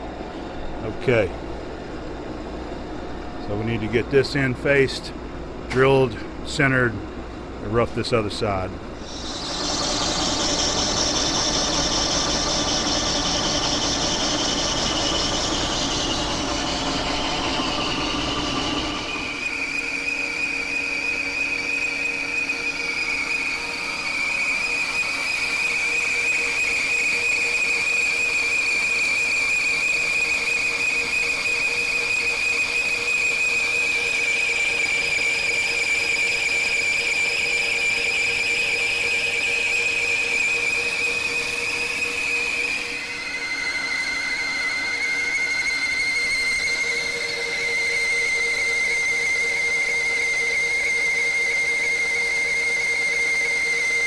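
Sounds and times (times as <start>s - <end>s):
machine humming: 0.0s - 54.0s
lathe cut squealing: 9.0s - 54.0s.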